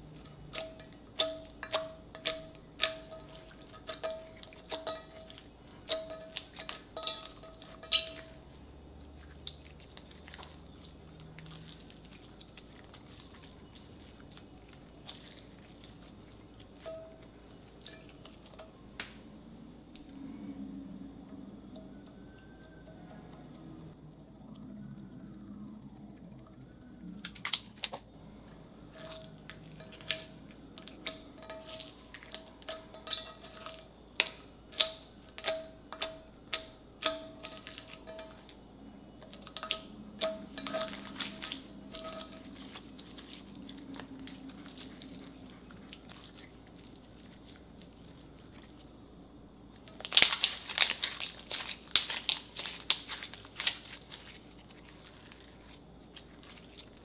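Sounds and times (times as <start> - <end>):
slime crackling: 0.0 - 19.2, 24.6 - 57.0
slime popping and clicking: 50.0 - 53.8.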